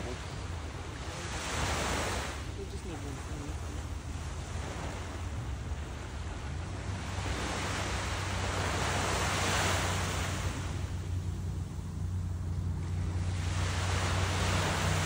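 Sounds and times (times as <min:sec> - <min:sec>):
small waves breaking on beach: 0:00.0 - 0:15.0
wind rumble on microphone: 0:00.0 - 0:15.0.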